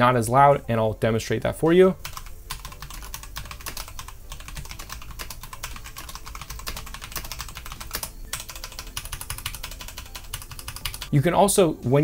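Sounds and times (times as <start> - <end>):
mechanical keyboard typing: 2.0 - 11.1.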